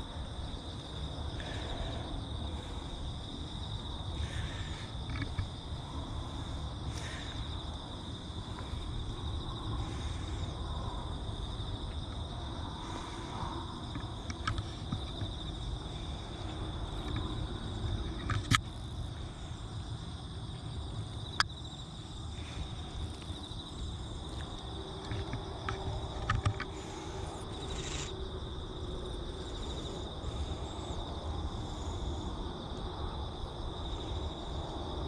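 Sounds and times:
insects trilling: 0:00.0 - 0:35.0.

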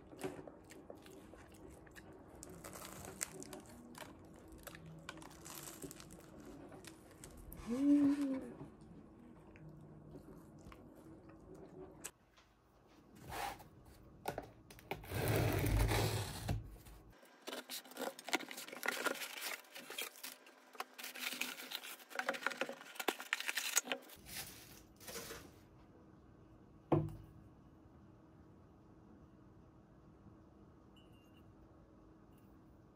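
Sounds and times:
wrapping rustling and tearing: 0:02.4 - 0:08.3, 0:17.4 - 0:25.4.

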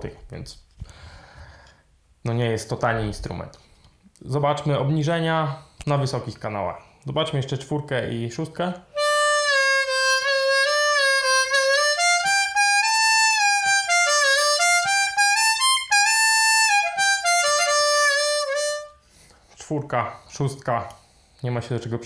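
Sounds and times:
harmonica notes bending: 0:08.9 - 0:19.1.

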